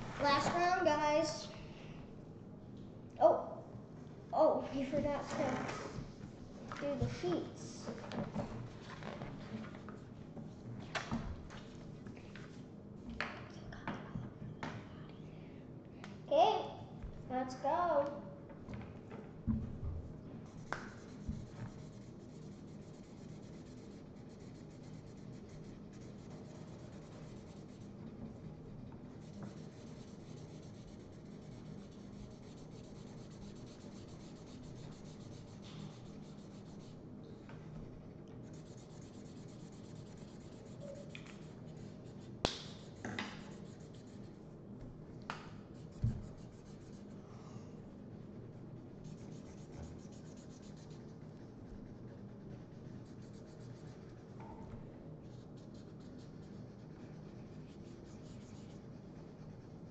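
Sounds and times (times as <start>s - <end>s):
markers scratching on paper: 20.5s - 37.0s, 38.4s - 44.4s, 45.7s - 47.2s, 48.9s - 54.4s, 55.2s - 59.9s.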